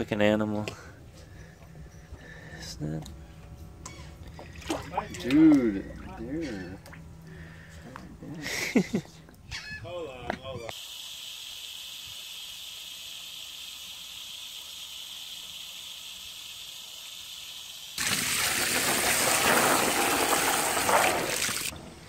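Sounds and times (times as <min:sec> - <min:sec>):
water gushing and splashing: 0:18.0 - 0:21.7.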